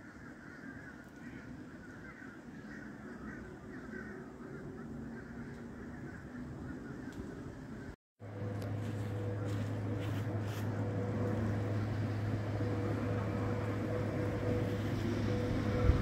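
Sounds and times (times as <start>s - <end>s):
low engine drone: 1.4s - 16.0s.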